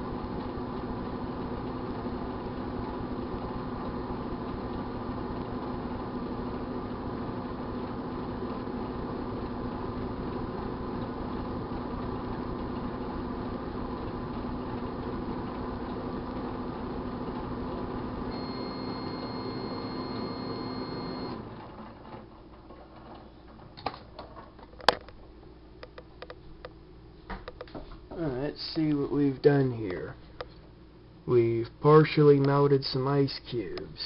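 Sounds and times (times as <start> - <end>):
microwave oven humming: 0.0 - 34.0
steady high tone: 18.3 - 21.4.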